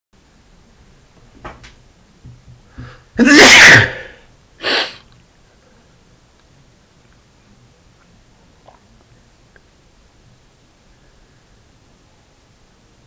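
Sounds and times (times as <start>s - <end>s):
short catching breaths: 2.7s - 3.1s
man sneezing: 3.2s - 5.0s.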